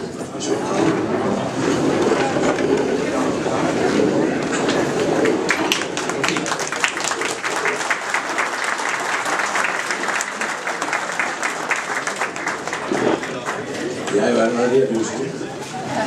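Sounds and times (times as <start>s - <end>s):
people applauding: 4.8s - 15.1s.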